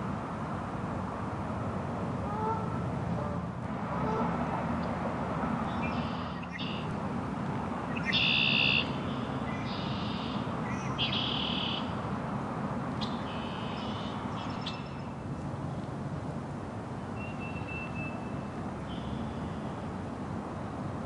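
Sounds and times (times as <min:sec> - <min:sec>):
blackbirds singing buzzy trills: 0:05.7 - 0:06.9, 0:07.9 - 0:11.9, 0:13.0 - 0:15.8, 0:17.2 - 0:19.8.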